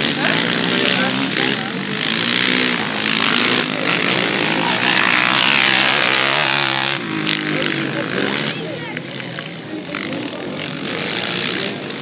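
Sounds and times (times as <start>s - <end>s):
quad engines revving hard: 0.0s - 12.0s.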